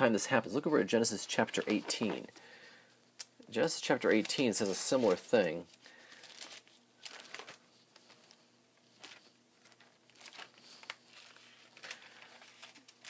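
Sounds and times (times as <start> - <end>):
book pages turning: 1.4 - 2.3, 4.1 - 13.0.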